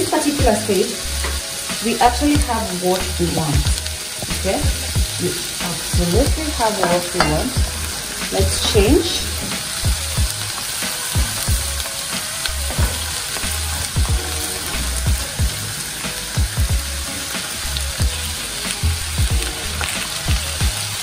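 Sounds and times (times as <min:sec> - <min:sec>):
potato slices sizzling in pan: 0:00.0 - 0:21.0
ladle knocking against pan: 0:06.8 - 0:07.7.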